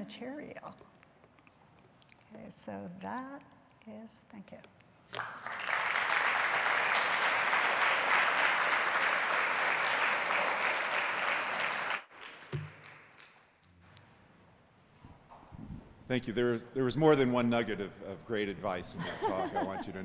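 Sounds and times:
audience applauding: 5.2 - 13.5.

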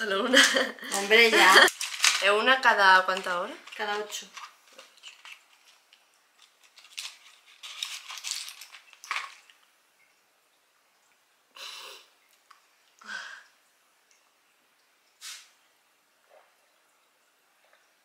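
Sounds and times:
blister pack crackling: 1.5 - 9.6.

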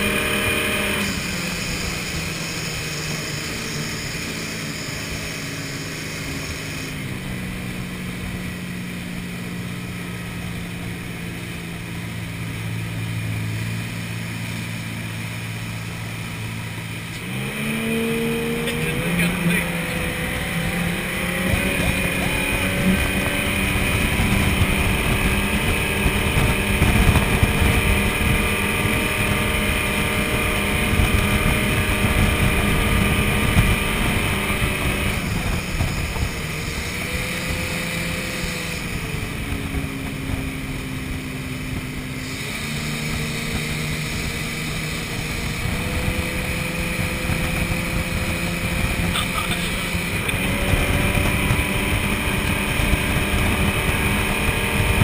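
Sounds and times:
boat engine running at speed: 0.0 - 55.0
rush of wake and spray: 0.0 - 55.0.

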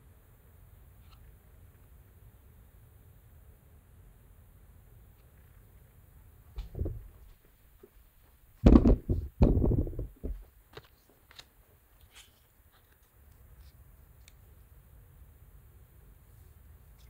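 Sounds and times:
objects thumping on table: 6.6 - 7.4, 8.6 - 10.5.

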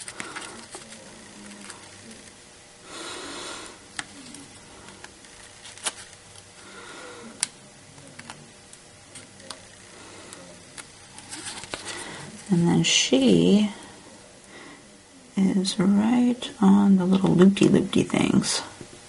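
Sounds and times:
paper rustling: 0.0 - 2.4, 4.0 - 6.2, 10.8 - 12.6.

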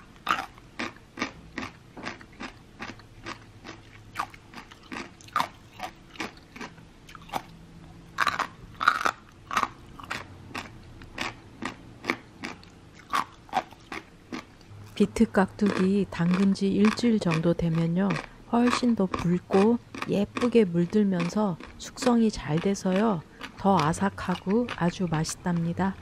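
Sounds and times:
person chewing crunchy food: 0.0 - 26.0.

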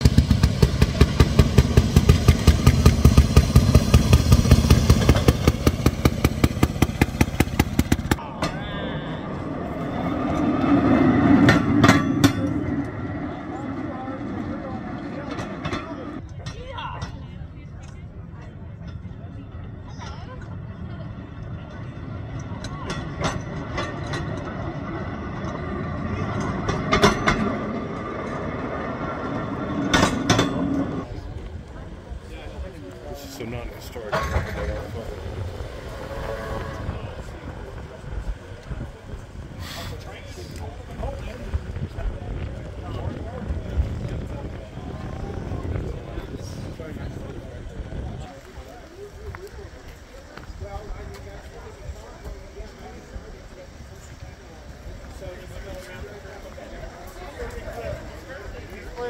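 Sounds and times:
rail speeder engine popping: 0.0 - 59.0.

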